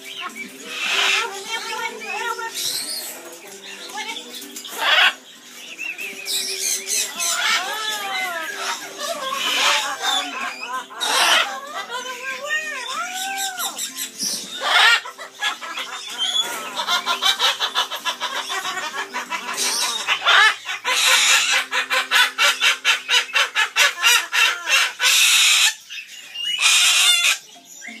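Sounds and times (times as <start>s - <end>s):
parrots screeching: 0.0s - 3.2s, 4.2s - 5.3s, 6.0s - 28.0s
parrots cackling laugh-like call: 0.7s - 1.2s, 4.8s - 5.2s, 7.2s - 13.8s, 14.5s - 25.9s, 26.5s - 27.5s.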